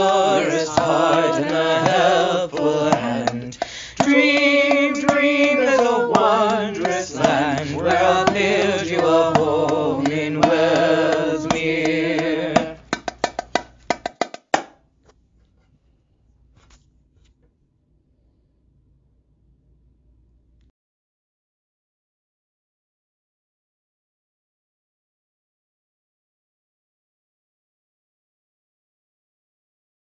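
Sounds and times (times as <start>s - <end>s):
vocal quartet singing in harmony: 0.0s - 13.0s
drum strikes: 0.0s - 14.8s.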